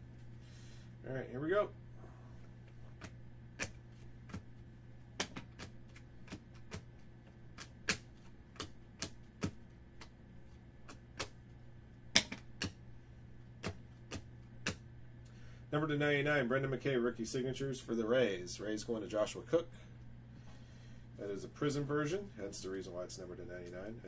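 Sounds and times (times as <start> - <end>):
low steady hum: 0.0 - 24.0
cards flicking clicks: 5.2 - 6.9, 7.6 - 10.2, 12.2 - 12.8.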